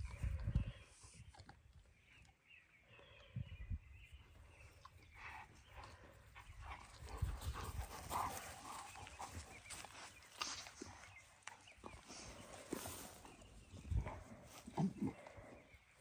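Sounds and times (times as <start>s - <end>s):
faint dog sounds: 5.2s - 16.0s.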